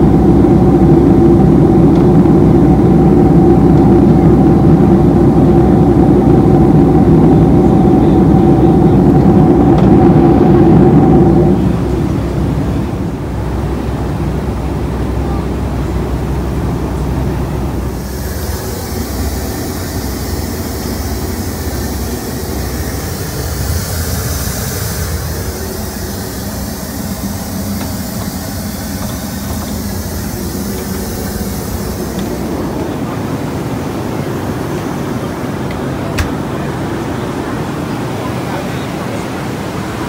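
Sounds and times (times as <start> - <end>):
airplane cabin engine rumble: 0.0 - 40.0
hiss: 17.9 - 33.8.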